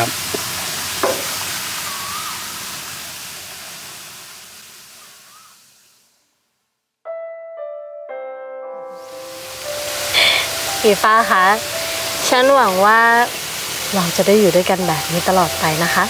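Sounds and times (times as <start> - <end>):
soft music with held notes: 7.0 - 16.0.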